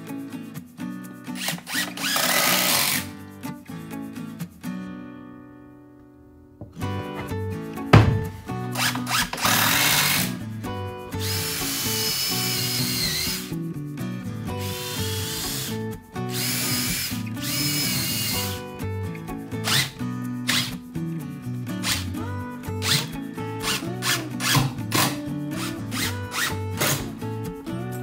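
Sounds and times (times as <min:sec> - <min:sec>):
background music: 0:00.0 - 0:28.0
cordless driver whining: 0:01.4 - 0:03.0, 0:08.8 - 0:10.4, 0:11.2 - 0:13.5, 0:14.6 - 0:15.7, 0:16.4 - 0:18.6.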